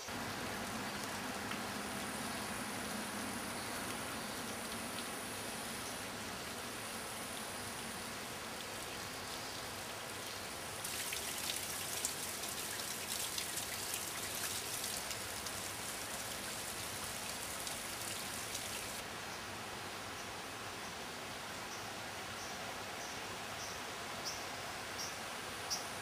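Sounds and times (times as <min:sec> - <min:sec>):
water dripping into a pool: 0:00.1 - 0:19.0.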